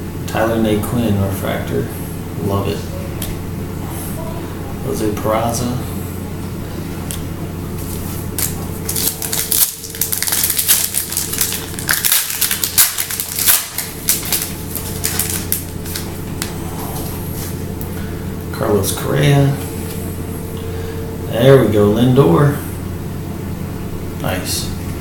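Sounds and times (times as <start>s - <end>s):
foil wrapper crinkling and tearing: 7.8s - 16.5s.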